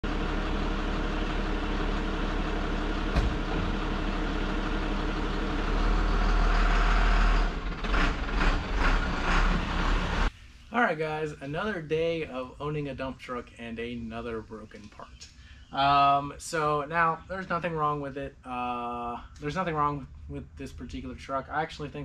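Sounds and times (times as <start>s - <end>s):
truck engine running: 0.0s - 10.3s
knocks: 3.1s - 3.7s.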